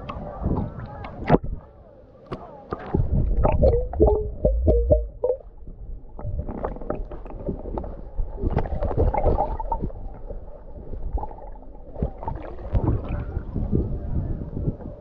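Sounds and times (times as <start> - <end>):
seawater sloshing and splashing: 6.2 - 13.6.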